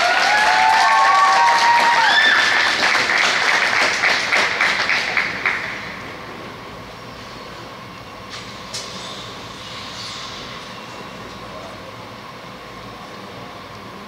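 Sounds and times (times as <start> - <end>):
audience applauding and cheering: 0.0 - 6.0.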